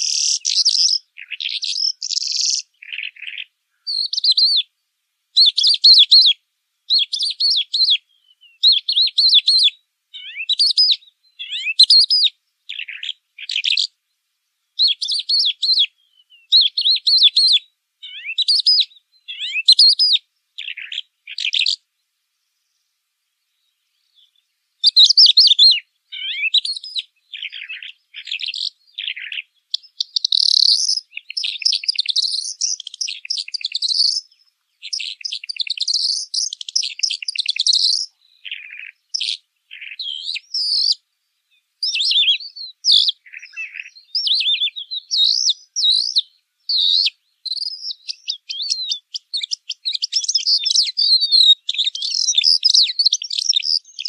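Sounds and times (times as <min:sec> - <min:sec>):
lark singing: 0:00.0 - 0:04.8, 0:05.4 - 0:14.0, 0:14.8 - 0:21.9, 0:23.5 - 0:54.0.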